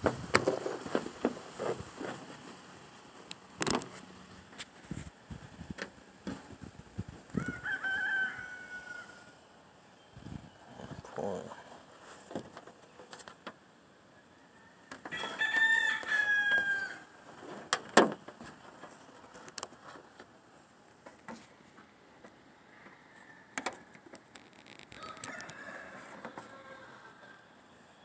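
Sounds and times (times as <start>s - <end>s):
rooster crowing: 7.3s - 9.4s, 14.2s - 17.2s, 22.7s - 23.8s, 24.9s - 27.6s.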